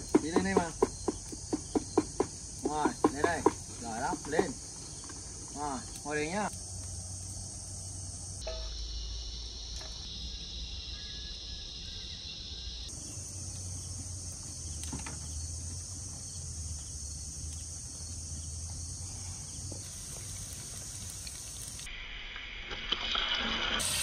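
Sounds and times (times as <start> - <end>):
wood fire crackling: 0.0 - 8.4, 12.9 - 21.9
crickets and insects chirping: 0.0 - 24.0.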